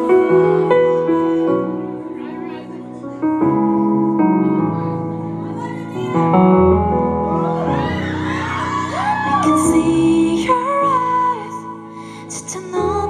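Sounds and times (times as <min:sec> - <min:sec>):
keyboard chords over speakers: 0:00.0 - 0:13.0
fans whooping and cheering: 0:07.2 - 0:09.9
woman singing: 0:09.0 - 0:13.0.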